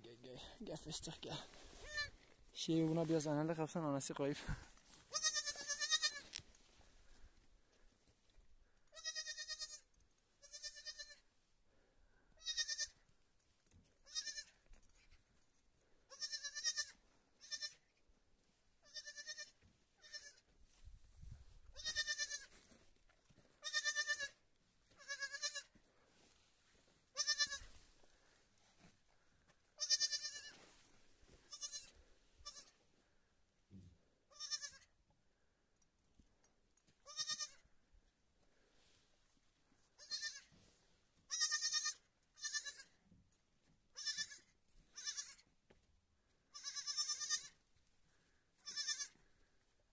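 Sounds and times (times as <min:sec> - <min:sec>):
lamb bleating: 0:01.8 - 0:02.2, 0:05.1 - 0:06.3, 0:08.9 - 0:11.2, 0:12.4 - 0:13.0, 0:14.0 - 0:14.6, 0:16.1 - 0:17.8, 0:18.8 - 0:20.4, 0:21.7 - 0:22.5, 0:23.6 - 0:25.7, 0:27.1 - 0:27.8, 0:29.8 - 0:30.6, 0:31.4 - 0:32.8, 0:34.3 - 0:34.9, 0:37.0 - 0:37.6, 0:40.0 - 0:40.5, 0:41.3 - 0:43.0, 0:44.0 - 0:45.4, 0:46.5 - 0:47.6, 0:48.6 - 0:49.2.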